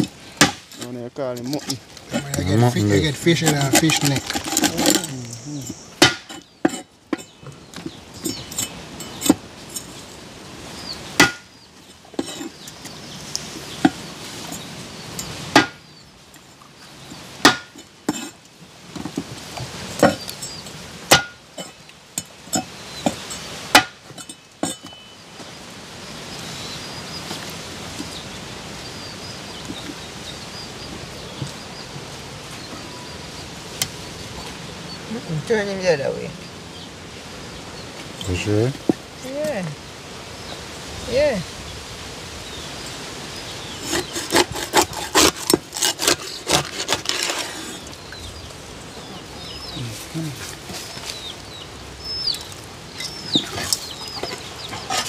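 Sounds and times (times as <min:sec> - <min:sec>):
cleaver chopping fish on wood: 0:00.0 - 0:00.7, 0:06.0 - 0:06.8, 0:11.2 - 0:11.5, 0:15.5 - 0:15.8, 0:17.4 - 0:18.2, 0:21.1 - 0:21.4, 0:23.0 - 0:24.0, 0:43.9 - 0:47.3
steady hiss: 0:00.0 - 0:44.3.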